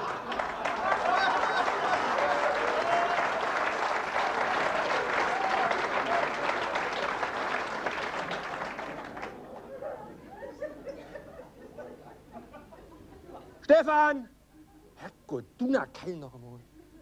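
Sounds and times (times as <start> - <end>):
audience laughter: 0.0 - 2.6, 9.1 - 13.6
audience applauding: 0.0 - 9.5.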